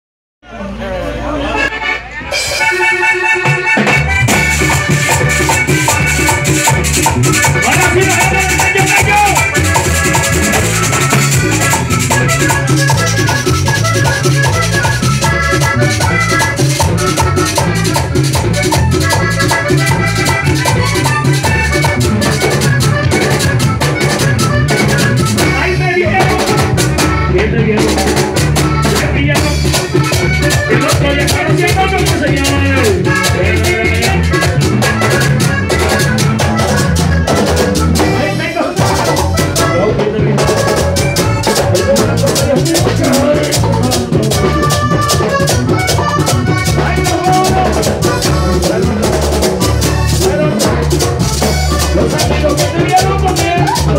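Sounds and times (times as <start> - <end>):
bass: 0.4 - 53.9
button accordion melody: 1.0 - 53.9
guacharaca scraping: 1.5 - 53.9
congas: 1.6 - 53.9
man singing: 7.5 - 9.9, 25.4 - 35.2, 38.0 - 45.5, 46.6 - 53.9.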